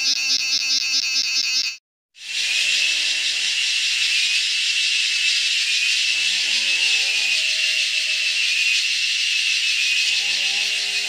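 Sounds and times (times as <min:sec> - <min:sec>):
cicadas buzzing: 0:02.2 - 0:11.0.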